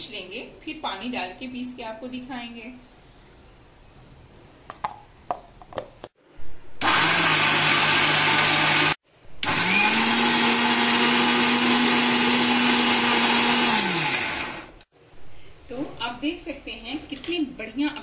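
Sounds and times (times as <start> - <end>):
mixer grinder motor: 6.8 - 14.8.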